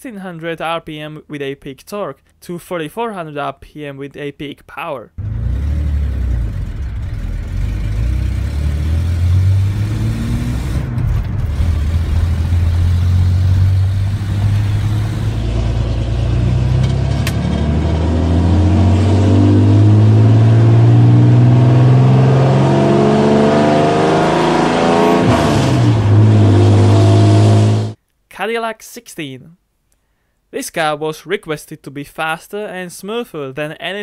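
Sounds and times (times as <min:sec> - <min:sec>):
pickup engine accelerating: 0:05.2 - 0:28.0.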